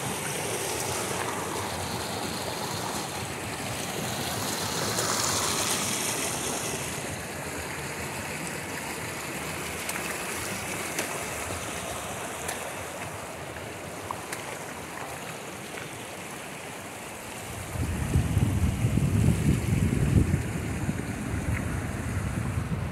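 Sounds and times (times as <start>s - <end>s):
stream and waterfalls rushing: 0.0s - 22.9s
wind buffeting microphone: 17.5s - 22.9s.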